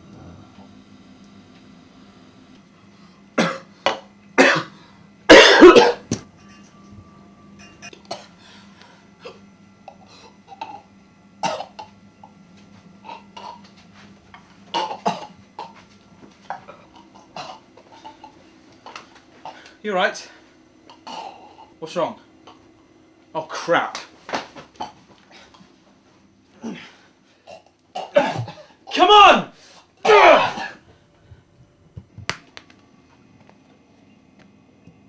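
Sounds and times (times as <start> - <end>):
man choking and coughing: 3.4 - 3.7, 4.4 - 6.2, 8.0 - 8.3, 10.0 - 12.4, 13.0 - 13.7, 14.7 - 15.8, 16.5 - 19.7, 20.8 - 21.8, 24.7 - 25.1, 26.6 - 28.8, 30.0 - 30.8.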